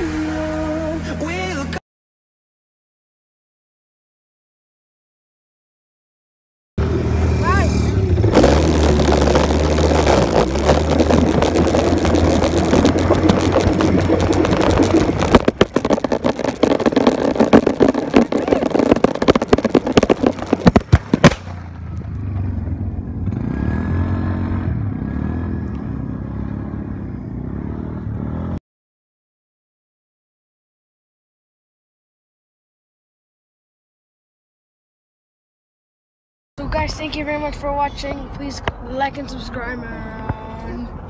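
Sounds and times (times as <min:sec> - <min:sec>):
wind noise: 0:06.8 - 0:22.6
quad bike engine running hard: 0:06.8 - 0:28.6
knocks and clatter of a fall: 0:13.2 - 0:21.6.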